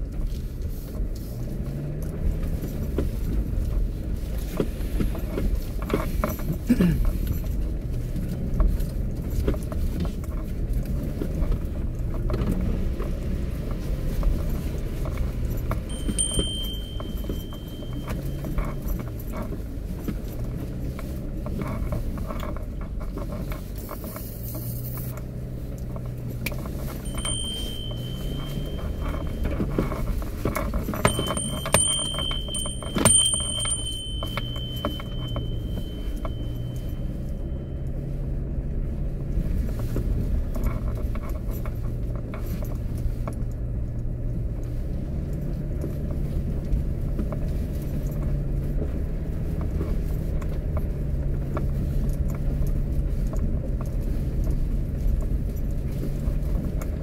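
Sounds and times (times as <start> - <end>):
engine and tyre rumble: 0.0 - 57.0
knocks and rattles: 26.0 - 37.0.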